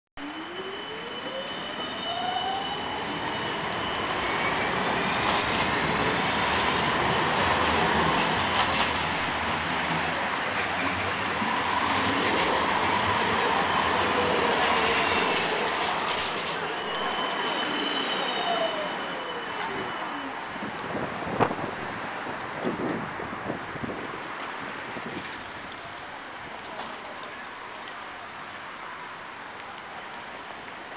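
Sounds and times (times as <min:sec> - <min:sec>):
high wheel squeal: 0:00.2 - 0:08.8, 0:11.7 - 0:21.1
trams rolling past: 0:00.2 - 0:30.9.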